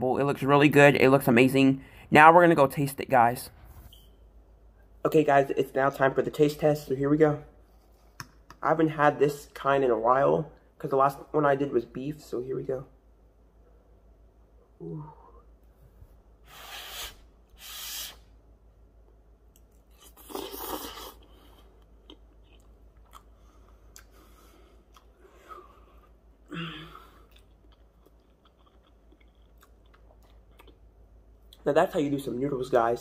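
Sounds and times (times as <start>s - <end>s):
soft chewing: 19.0s - 31.7s
person slurping noodles: 20.0s - 21.4s.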